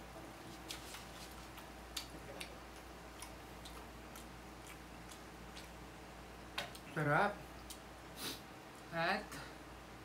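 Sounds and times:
low steady hum: 0.0s - 10.0s
eating clicks: 1.6s - 5.8s.

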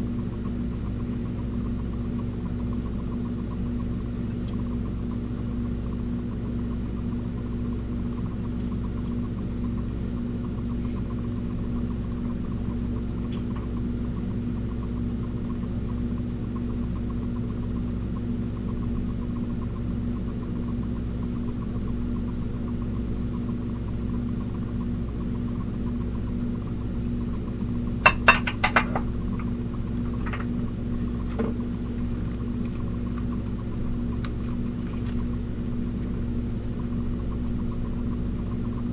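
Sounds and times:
steady low hum: 0.0s - 38.9s
dishes clinking: 28.1s - 29.1s.

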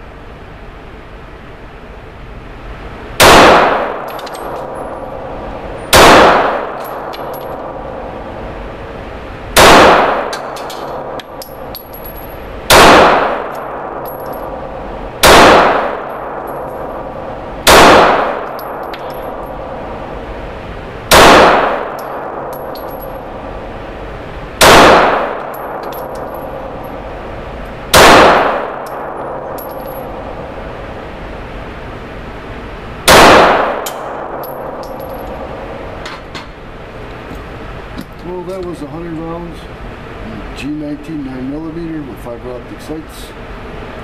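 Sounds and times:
steady background noise: 0.0s - 44.0s
pistol shots echoing indoors: 3.2s - 8.4s, 9.5s - 20.2s, 21.1s - 23.6s, 24.6s - 30.8s, 33.0s - 36.0s.

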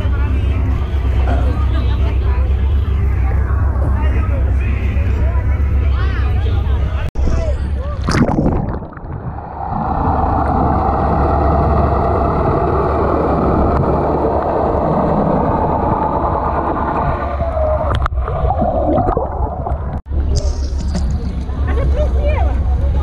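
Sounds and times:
muffled underwater rushing hum: 0.0s - 23.0s
splash into water: 8.0s - 9.4s
bubbles: 8.0s - 12.9s, 17.8s - 20.1s.

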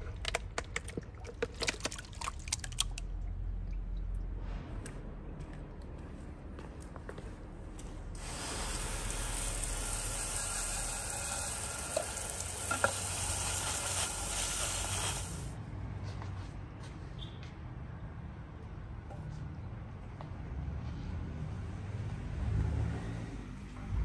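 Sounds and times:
hose nozzle spraying water: 8.2s - 15.6s.

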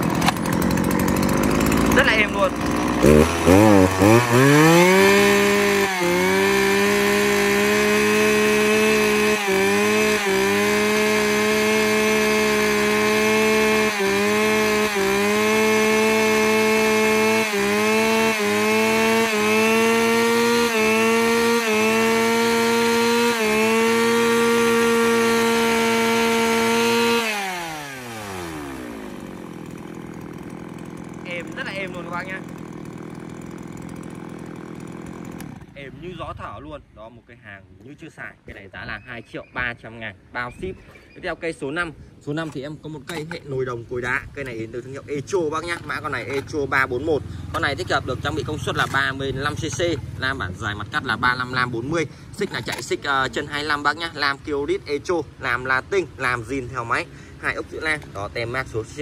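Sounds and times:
chainsaw engine revving: 0.0s - 36.5s, 44.3s - 54.4s.

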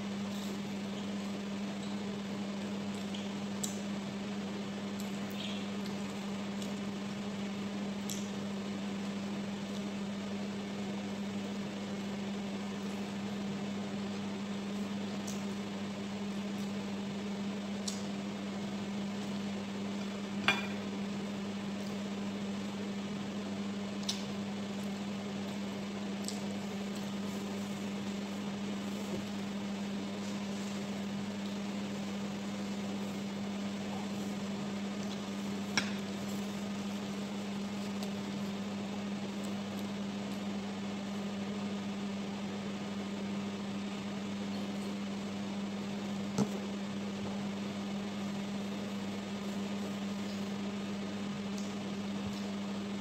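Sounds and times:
low appliance hum: 0.0s - 53.0s.

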